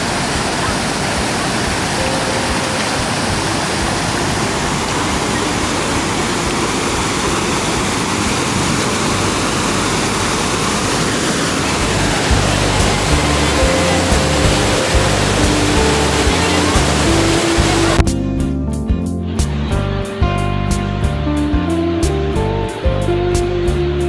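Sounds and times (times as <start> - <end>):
waterfall rushing: 0.0 - 18.1
background music thumps: 11.8 - 24.0.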